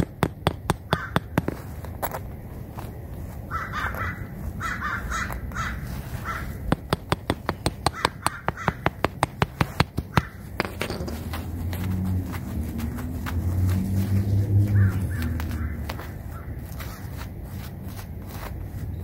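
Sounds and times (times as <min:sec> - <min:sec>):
hammer tapping nail: 0:00.0 - 0:01.6, 0:06.7 - 0:11.1
crow cawing: 0:00.9 - 0:01.3, 0:03.5 - 0:06.7, 0:07.9 - 0:09.0, 0:10.1 - 0:10.5, 0:14.7 - 0:17.0.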